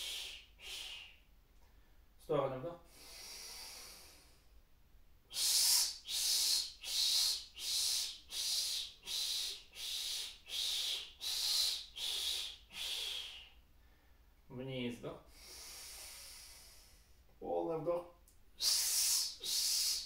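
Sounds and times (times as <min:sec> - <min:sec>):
man inhaling softly: 0:02.9 - 0:04.6, 0:05.4 - 0:14.4, 0:15.2 - 0:17.3.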